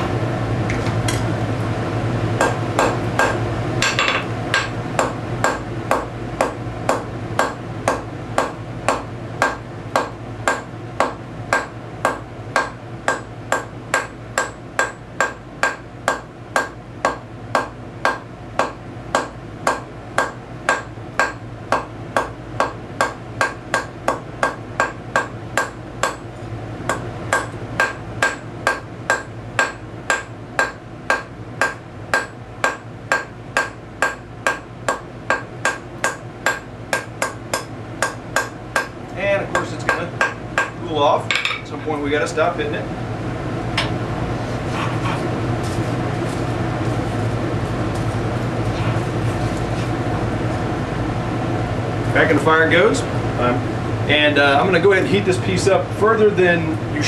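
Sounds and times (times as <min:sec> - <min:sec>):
hammer striking steel on anvil: 0:02.4 - 0:26.2, 0:26.9 - 0:41.6.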